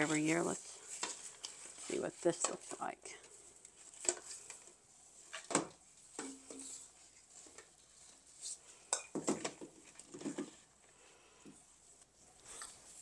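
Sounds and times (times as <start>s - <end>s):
dried stalks rustling: 0.0s - 4.6s.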